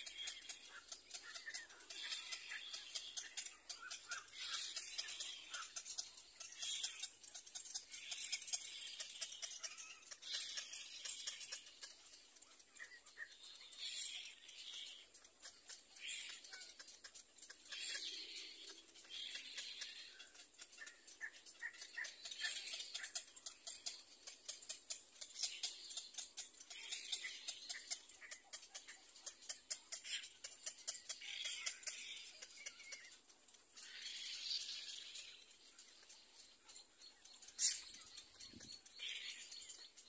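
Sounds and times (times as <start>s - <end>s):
rapid clicking: 0.0s - 40.0s
chicks rasping begging calls: 7.9s - 24.0s.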